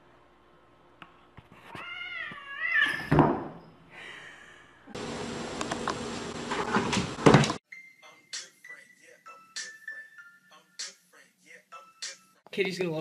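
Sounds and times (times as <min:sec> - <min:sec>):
cat meowing: 0:01.7 - 0:03.1.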